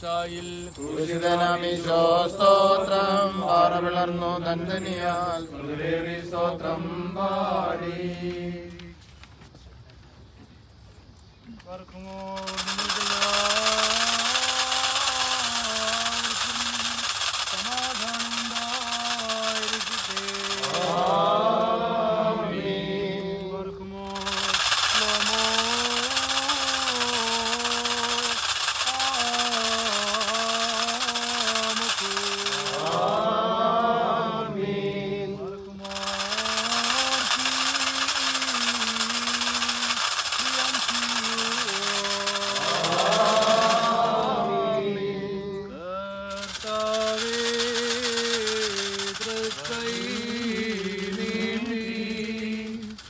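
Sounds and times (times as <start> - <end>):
rapid metallic jingling: 0.0 - 3.9, 4.7 - 5.6, 12.0 - 21.4, 24.0 - 33.3, 35.8 - 44.5, 46.3 - 53.0
man chanting a hymn: 0.0 - 9.0, 11.5 - 53.0
high rattling clatter: 12.1 - 21.3, 24.0 - 33.3, 35.6 - 44.3, 46.3 - 53.0.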